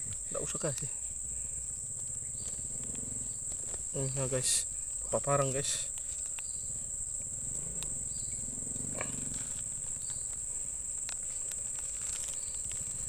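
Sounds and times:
insects trilling: 0.0 - 13.0
faint clicks: 1.9 - 3.9, 5.9 - 13.0.

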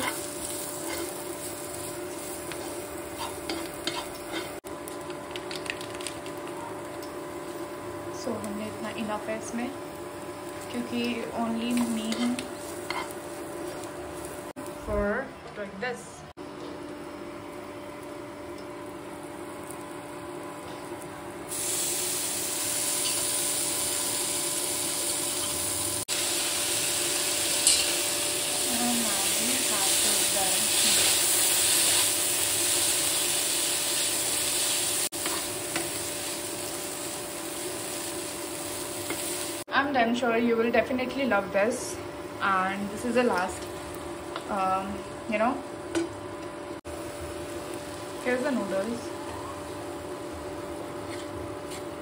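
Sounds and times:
metal spoon scraping a pan: 0.0 - 1.2, 2.2 - 4.6, 11.7 - 13.2, 27.6 - 28.0
vegetables sizzling in a pan: 0.0 - 15.1, 17.6 - 52.0.

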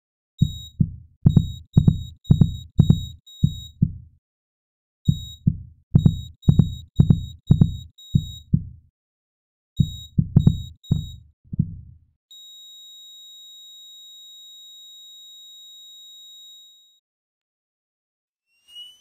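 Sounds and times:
short high beeps: 0.4 - 3.8, 6.0 - 8.5, 9.8 - 11.2
synthesized heartbeat thumps: 0.4 - 4.2, 5.1 - 8.9, 9.8 - 12.0.

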